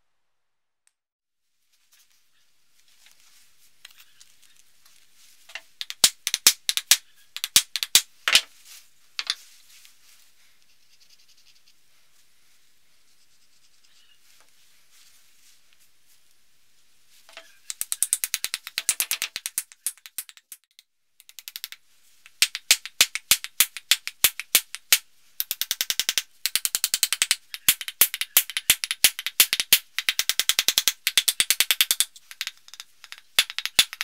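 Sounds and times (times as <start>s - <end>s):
rubber mallet tapping wood: 5.5s - 8.5s, 17.3s - 20.6s, 21.3s - 34.0s.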